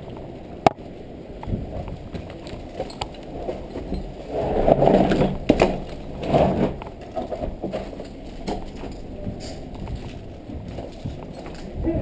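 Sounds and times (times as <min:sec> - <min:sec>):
footsteps crunching on concrete stairs: 0:04.8 - 0:11.9.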